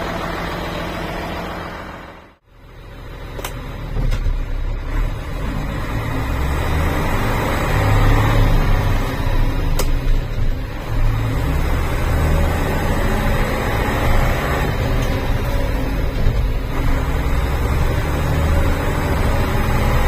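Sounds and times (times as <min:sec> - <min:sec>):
diesel truck engine rumbling: 0:00.0 - 0:20.0.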